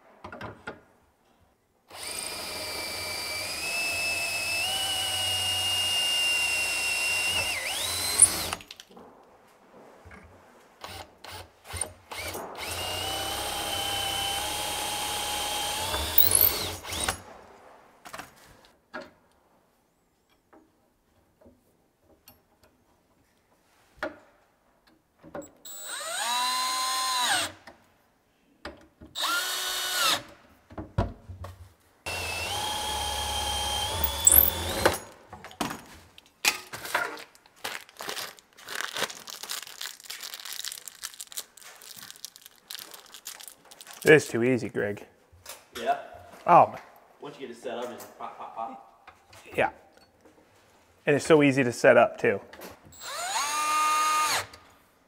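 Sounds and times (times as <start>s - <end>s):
cordless drill boring through wood: 1.9s - 8.7s, 10.8s - 17.2s, 25.6s - 27.6s, 29.2s - 30.3s, 32.1s - 35.1s, 53.0s - 54.6s.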